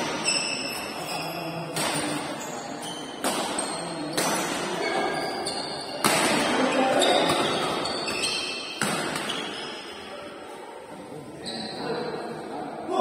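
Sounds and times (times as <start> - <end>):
rackets hitting shuttlecock: 1.7 - 2.4, 3.0 - 4.8, 6.0 - 9.6.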